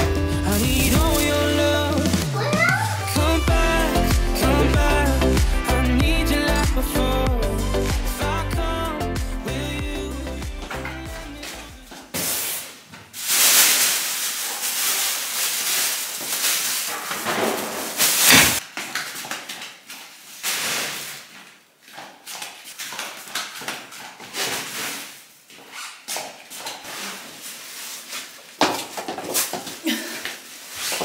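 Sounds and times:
sacks and plastic bags rustling: 0.0 - 3.4, 10.6 - 31.0.

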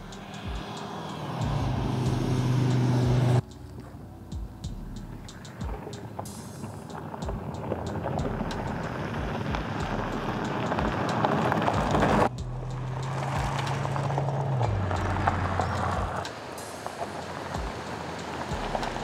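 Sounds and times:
car engine humming: 0.0 - 19.0
tyres crunching over gravel: 5.6 - 19.0.

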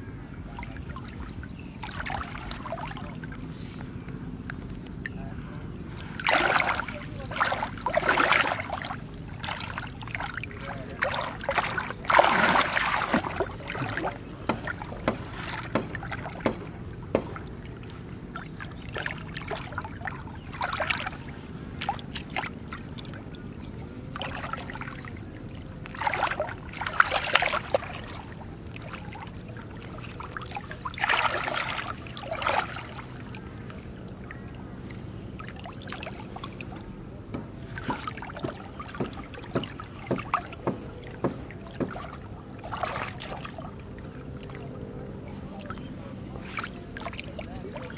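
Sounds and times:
hands sloshing in muddy water: 0.4 - 47.9
small wet clicks: 3.8 - 5.2.

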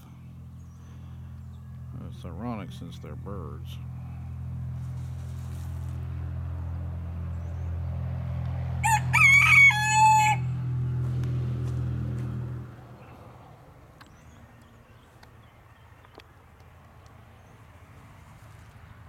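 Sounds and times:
low hum: 0.0 - 14.9
rooster crowing: 8.8 - 10.6.

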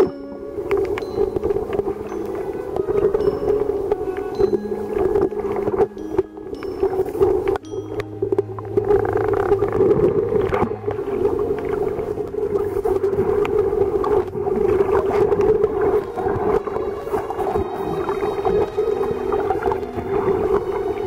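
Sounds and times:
faint underwater clicks: 0.0 - 21.0
underwater water noise: 0.0 - 21.0
steady low hum: 3.3 - 15.0.

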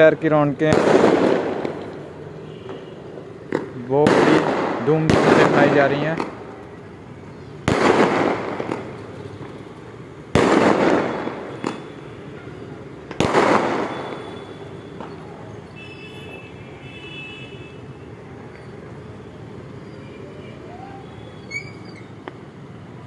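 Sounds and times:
fireworks bangs: 0.0 - 6.8, 7.6 - 15.8
city noise hum: 0.0 - 23.0
small firework pops: 0.7 - 2.0, 3.5 - 6.7, 7.6 - 9.6, 10.3 - 12.0, 13.0 - 15.3, 22.2 - 22.4.

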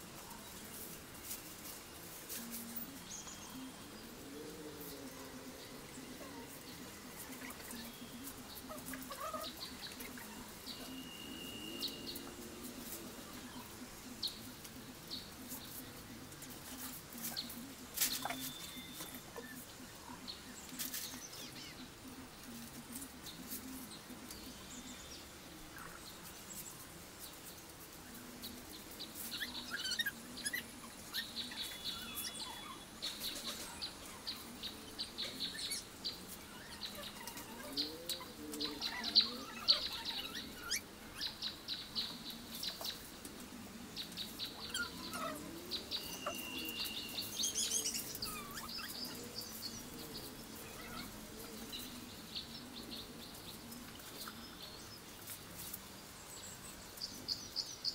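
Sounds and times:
dry palm leaves rustling: 0.0 - 19.9
small birds chirping: 0.0 - 57.9.

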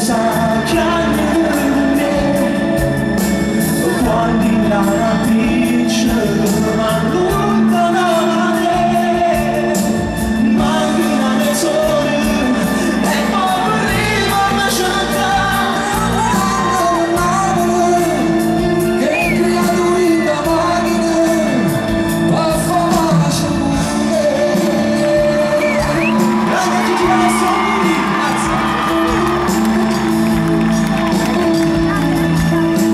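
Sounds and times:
man singing: 0.0 - 32.9
crowd shouting: 25.6 - 31.4.

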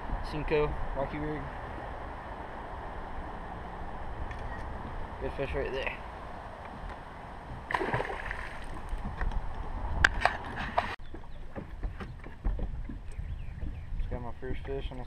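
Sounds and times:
scuffs and knocks on boat deck: 10.1 - 14.0.

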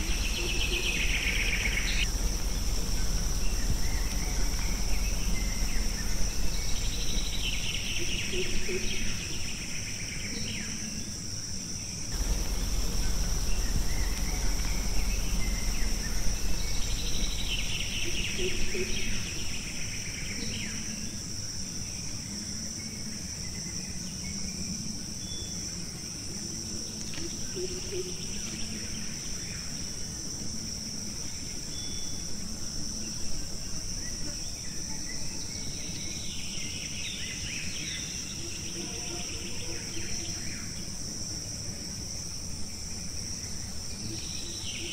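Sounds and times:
low rumble: 0.0 - 9.5, 12.1 - 20.1
bird calls: 0.0 - 9.6, 12.2 - 19.8
high-pitched insect drone: 0.0 - 11.2, 12.1 - 24.0.

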